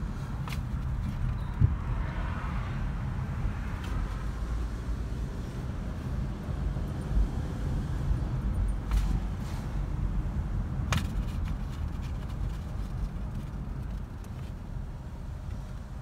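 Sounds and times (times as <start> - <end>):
car road and engine rumble: 0.0 - 16.0
car bump: 10.8 - 12.5.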